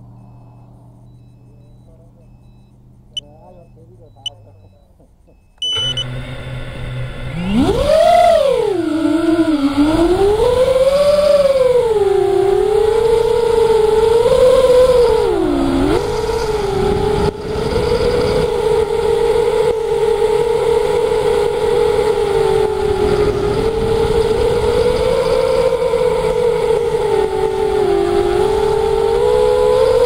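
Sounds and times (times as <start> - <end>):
electric motor and propeller whine: 5.6 - 30.0
wind rushing over microphone: 13.3 - 30.0.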